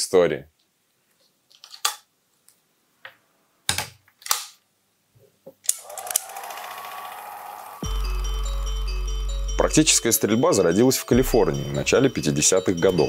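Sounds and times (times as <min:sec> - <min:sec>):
film projector whirring and clattering: 0:05.7 - 0:07.3.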